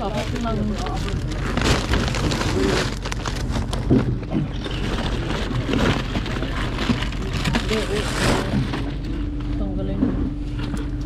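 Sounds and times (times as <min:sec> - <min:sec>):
plastic bag crinkling: 0:00.0 - 0:09.5.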